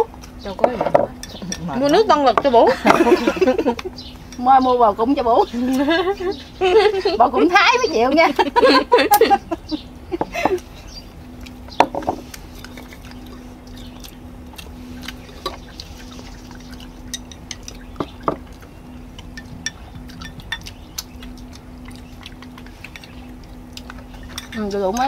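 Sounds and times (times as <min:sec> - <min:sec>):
faint steady hum: 0:00.0 - 0:25.0
utensils clinking on ceramic bowls: 0:00.6 - 0:04.5, 0:16.6 - 0:18.6, 0:19.2 - 0:25.0.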